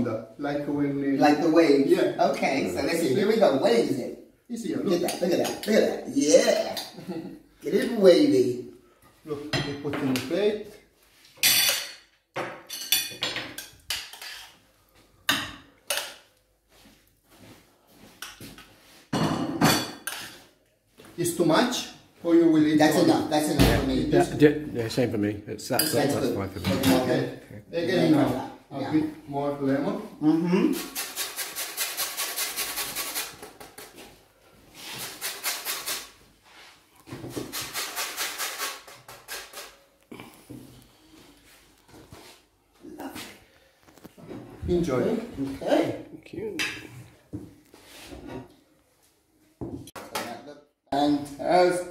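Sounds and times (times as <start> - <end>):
spoon scraping and clinking dishes: 11.4 - 14.6, 18.2 - 20.5.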